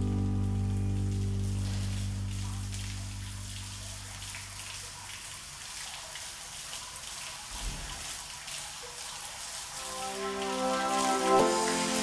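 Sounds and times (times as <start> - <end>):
water spraying hiss: 9.6 - 12.0.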